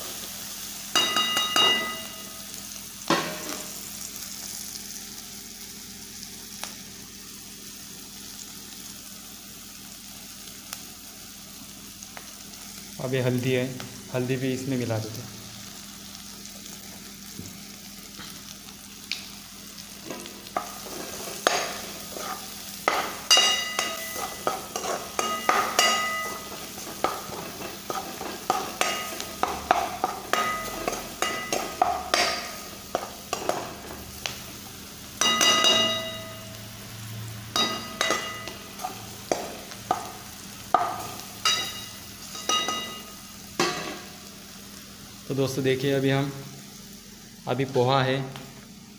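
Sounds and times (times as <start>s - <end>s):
vegetables sizzling in oil: 0.0s - 48.9s
spatula scraping metal pan: 20.1s - 29.2s.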